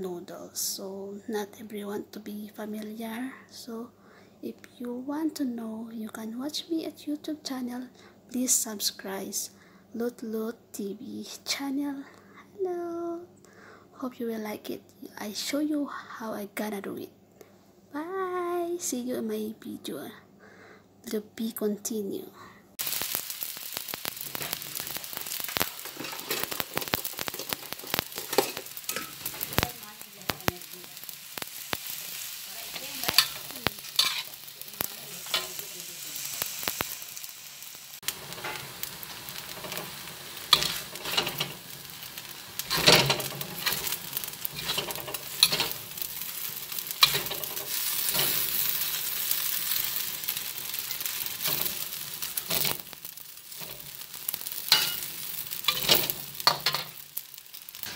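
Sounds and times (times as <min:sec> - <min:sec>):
noodles sizzling in a wok: 0:22.8 - 0:57.9
metal spatula scraping a wok: 0:24.3 - 0:30.4, 0:31.4 - 0:36.9, 0:38.0 - 0:57.0.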